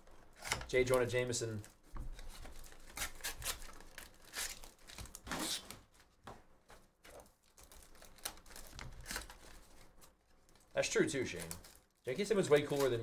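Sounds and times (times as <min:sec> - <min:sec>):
plastic shrink-wrap crinkling and tearing: 0:00.3 - 0:05.9, 0:07.2 - 0:13.0
cardboard rustling: 0:00.8 - 0:13.0.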